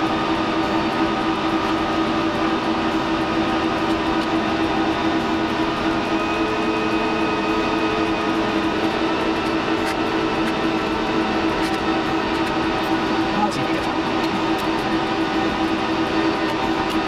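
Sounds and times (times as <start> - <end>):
server cooling fans whirring: 0.0 - 17.0.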